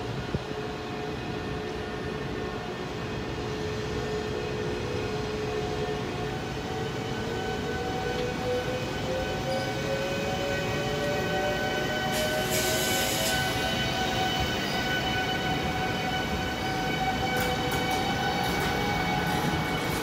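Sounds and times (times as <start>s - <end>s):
train wheels on rails: 0.1s - 20.0s.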